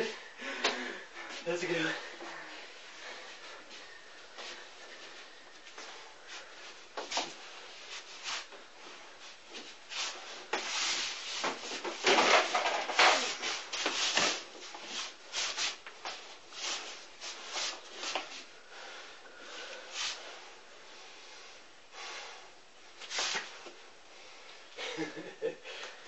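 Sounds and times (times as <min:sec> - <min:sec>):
feet scuffing: 0:13.3 - 0:18.5, 0:23.0 - 0:23.8.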